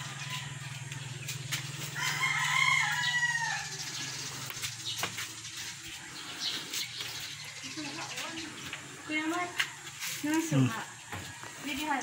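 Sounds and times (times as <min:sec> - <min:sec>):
rooster crowing: 0:00.0 - 0:04.0.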